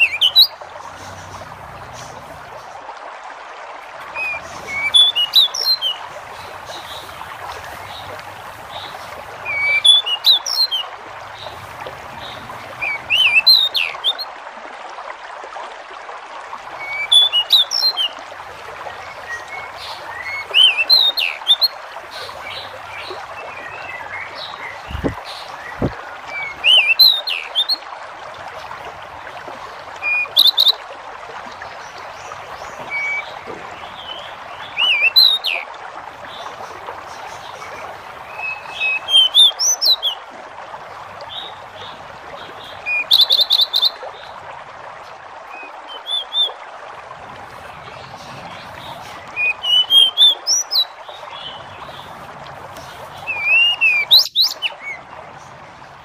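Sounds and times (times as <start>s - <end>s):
bird whistling song: 0.0s - 0.5s, 4.2s - 6.0s, 9.4s - 10.8s, 12.8s - 14.3s, 16.8s - 18.1s, 19.3s - 21.7s, 25.8s - 27.8s, 30.0s - 30.8s, 34.7s - 35.6s, 38.3s - 40.2s, 42.9s - 44.0s, 45.6s - 46.6s, 49.4s - 50.9s, 53.3s - 55.0s.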